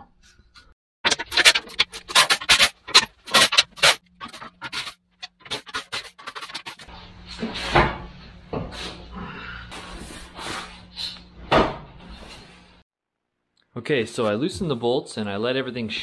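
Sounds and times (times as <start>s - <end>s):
metal knock and scrape: 1.0s - 6.9s
steel clanking and rattling: 1.0s - 6.9s.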